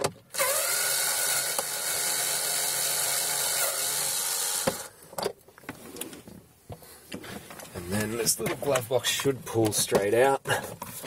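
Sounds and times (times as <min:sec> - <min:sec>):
power screwdriver running: 0:00.3 - 0:04.9.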